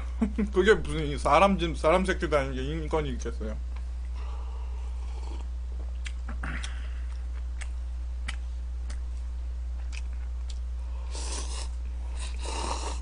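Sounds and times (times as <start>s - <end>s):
steady low hum: 0.0s - 13.0s
man chewing noodles: 4.8s - 13.0s.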